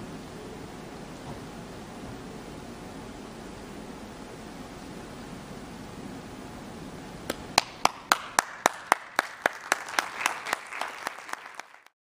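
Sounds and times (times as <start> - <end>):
person clapping sharply: 7.3 - 11.9
audience applauding: 7.3 - 12.0.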